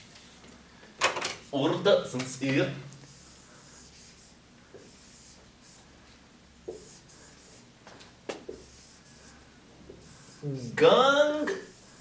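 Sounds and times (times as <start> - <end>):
marker pen scratching on whiteboard: 3.1 - 5.9, 6.6 - 7.7, 8.3 - 10.6.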